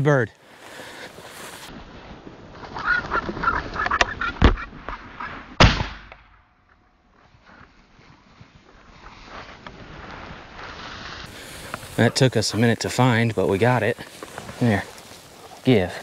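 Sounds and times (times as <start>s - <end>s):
shotgun shots: 5.6s - 6.4s.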